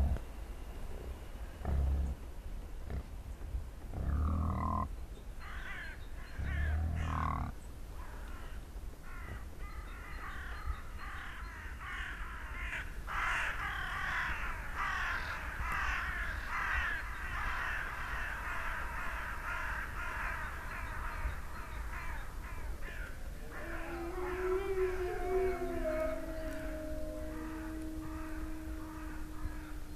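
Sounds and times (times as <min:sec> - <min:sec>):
deep low animal calls: 0:00.0 - 0:00.3, 0:01.5 - 0:03.2, 0:03.9 - 0:04.9, 0:05.6 - 0:07.6, 0:22.9 - 0:29.9
crows cawing: 0:11.1 - 0:20.9, 0:21.9 - 0:29.9.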